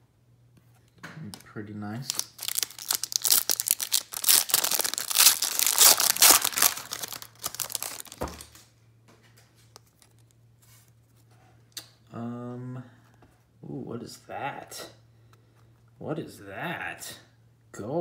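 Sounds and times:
foil wrapper tearing and crinkling: 2.0 - 8.6.

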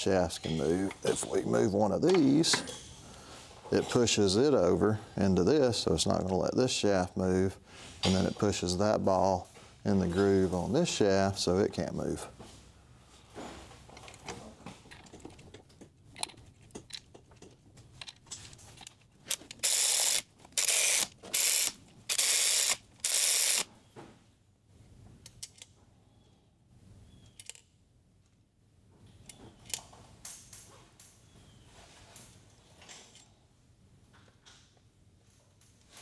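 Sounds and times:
metallic clicks of parts handled: 14.0 - 23.6, 25.2 - 25.8, 27.2 - 28.4, 29.2 - 31.2, 32.2 - 33.4
power ratchet running down bolts: 19.6 - 23.7.

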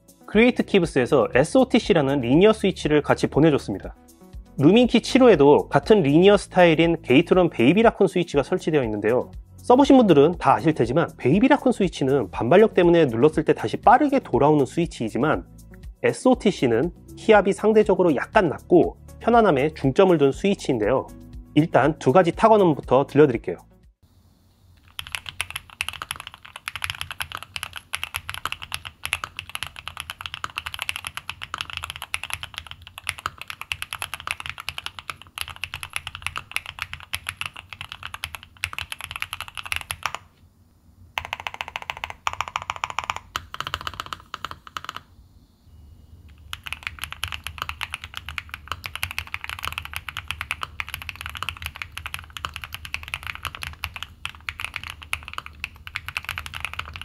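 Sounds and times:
fast typing on mechanical keyboard: 24.8 - 40.3, 41.2 - 45.1, 46.3 - 57.0.

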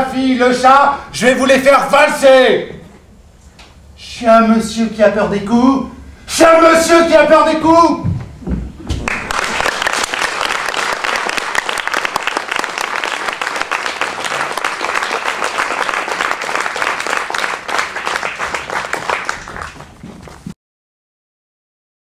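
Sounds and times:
audience applauding: 8.9 - 20.5.

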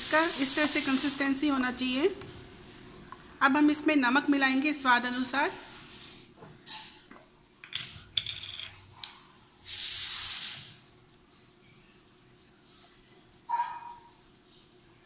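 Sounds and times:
glass jar clinks and knocks: 7.7 - 8.8.

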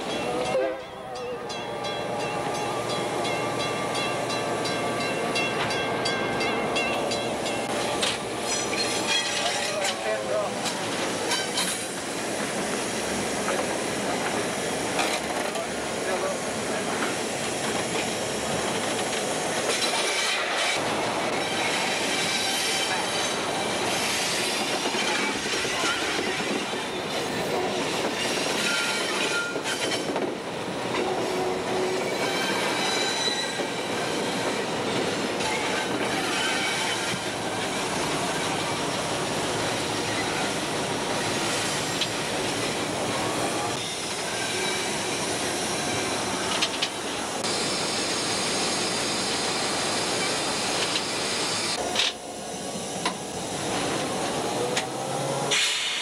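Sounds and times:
wheels squealing on rails: 0.0 - 30.2, 31.0 - 56.0
train engine and wheels rolling: 0.0 - 56.0.

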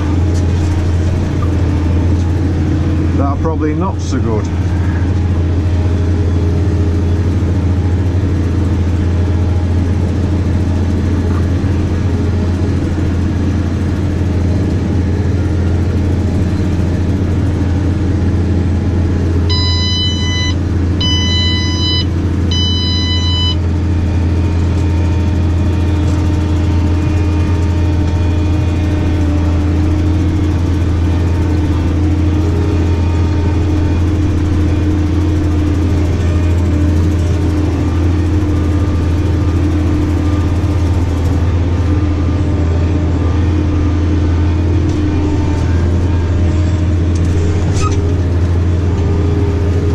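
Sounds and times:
tractor engine droning: 0.0 - 49.9
electronic beeps: 19.5 - 23.6.

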